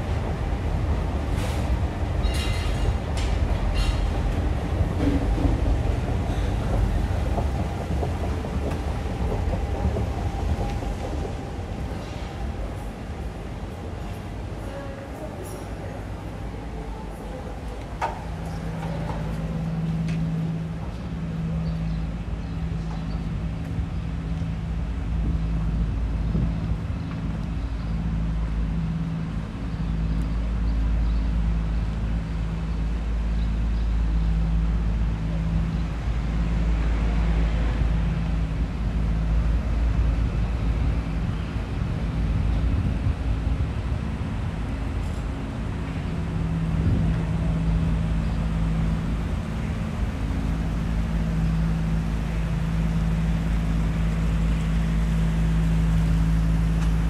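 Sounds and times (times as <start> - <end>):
road traffic engine hum: 0.0 - 57.0
deep rumble: 16.4 - 57.0.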